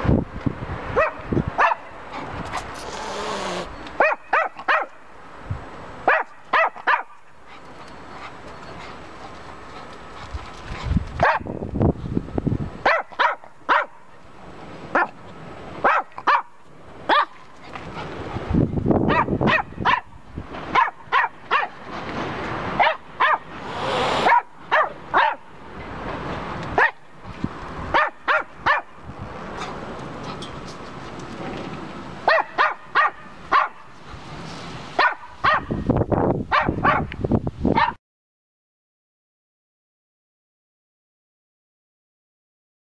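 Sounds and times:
dog barking sharply: 1.0 - 1.9, 2.5 - 5.0, 6.1 - 7.2, 11.2 - 11.4, 12.8 - 14.0, 15.8 - 16.5, 19.1 - 20.1, 20.7 - 21.7, 22.8 - 25.4, 28.0 - 28.9, 32.3 - 33.8, 35.0 - 35.7, 36.5 - 37.1.

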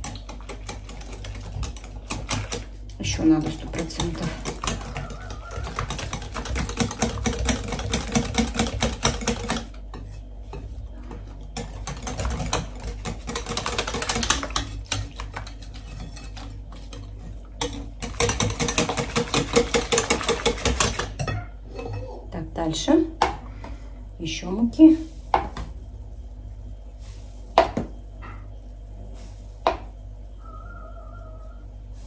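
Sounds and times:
utensil scraping mixing bowl: 0.0 - 21.2.

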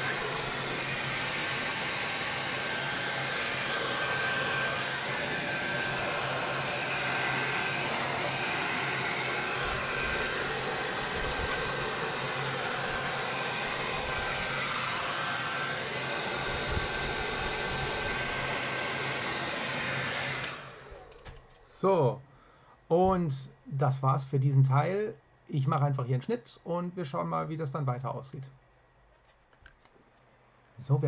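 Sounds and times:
hair dryer blowing: 0.0 - 21.4.

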